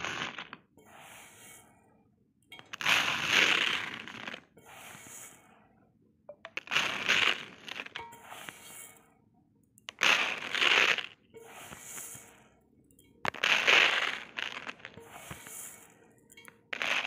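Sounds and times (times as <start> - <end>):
rice grains rustling: 2.8 - 5.3, 6.6 - 9.0, 10.0 - 12.4, 13.3 - 15.9.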